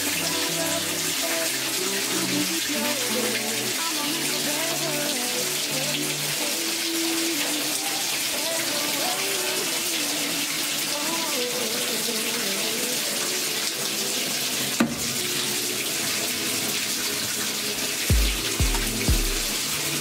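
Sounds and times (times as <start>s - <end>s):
water pouring into washing machine: 0.0s - 20.0s
low thumps: 18.1s - 19.6s.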